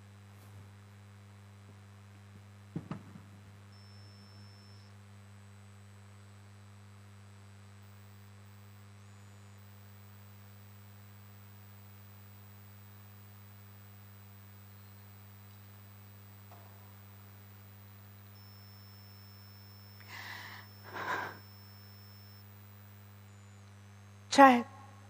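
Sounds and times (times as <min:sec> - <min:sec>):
low electrical hum: 0:00.0 - 0:25.0
faint hiss: 0:07.8 - 0:24.1.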